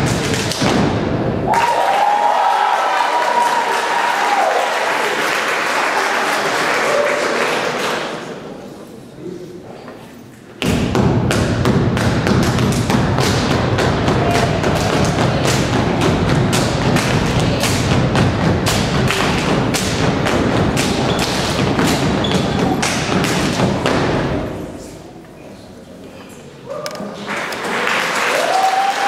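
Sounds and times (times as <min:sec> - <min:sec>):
people clapping: 0:00.0 - 0:00.7, 0:01.5 - 0:08.5, 0:13.2 - 0:23.8, 0:26.8 - 0:29.0
stomping feet: 0:10.6 - 0:24.5.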